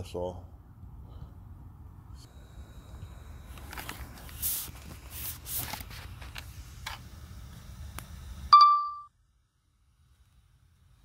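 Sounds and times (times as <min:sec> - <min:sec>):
handling rustles scrapes and knocks: 0:03.6 - 0:07.0.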